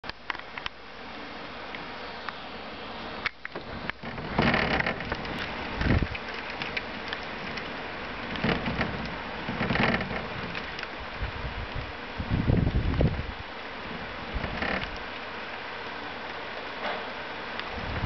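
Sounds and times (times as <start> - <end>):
rain hissing: 0.0 - 18.0
low thunder thumps: 5.0 - 6.2, 17.8 - 18.0.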